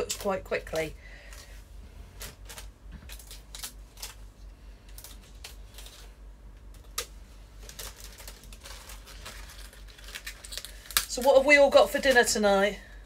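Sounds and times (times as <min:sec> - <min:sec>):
stems snapping: 0:02.2 - 0:04.2
leaves tearing and rustling: 0:06.8 - 0:11.3.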